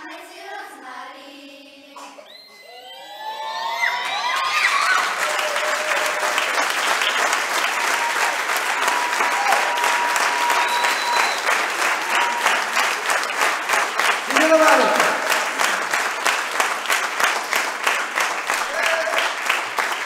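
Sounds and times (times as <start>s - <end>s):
audience applause: 3.1s - 20.0s.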